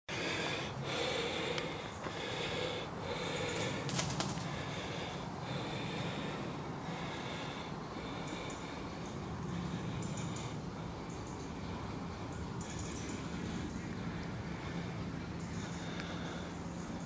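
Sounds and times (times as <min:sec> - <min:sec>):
person breathing hard: 0:00.1 - 0:17.0.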